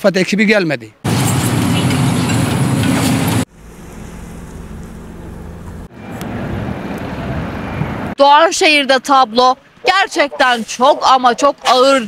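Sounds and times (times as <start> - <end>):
excavator diesel engine: 1.1 - 8.2
steady low rumble: 3.3 - 8.2.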